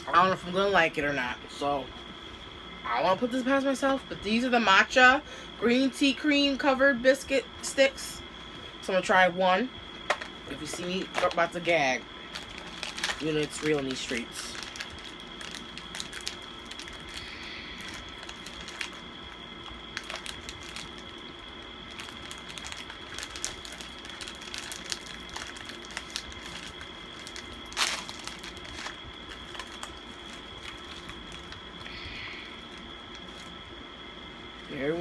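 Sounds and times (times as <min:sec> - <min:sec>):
foil wrapper crinkling: 0:10.1 - 0:33.6.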